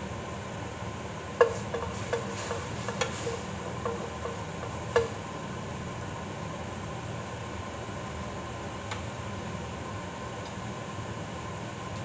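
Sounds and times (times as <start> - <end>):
steady hiss: 0.0 - 7.3
wooden spoon knocking metal pot: 3.8 - 5.2.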